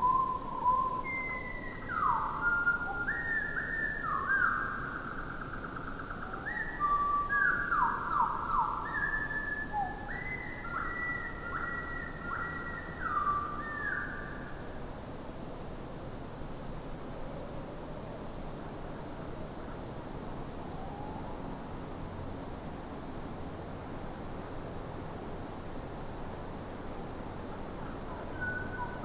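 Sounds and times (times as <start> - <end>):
slowed bird calls as low whistles: 0.0 - 14.8, 20.6 - 21.5, 27.8 - 29.0.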